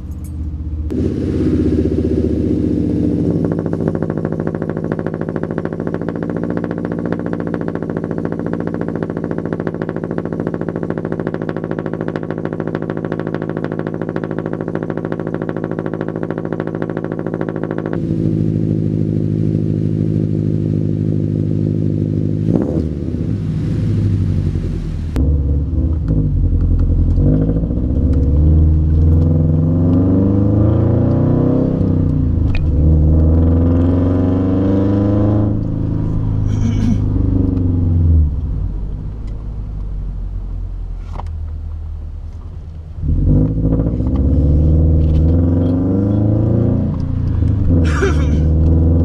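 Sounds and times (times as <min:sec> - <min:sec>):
car engine idling fast: 0:00.0 - 0:22.5, 0:46.9 - 0:49.0.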